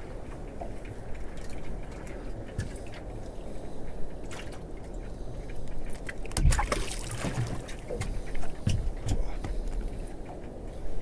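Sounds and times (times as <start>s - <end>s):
water lapping against boat hull: 0.0s - 11.0s
fish splashing into water: 6.4s - 7.7s.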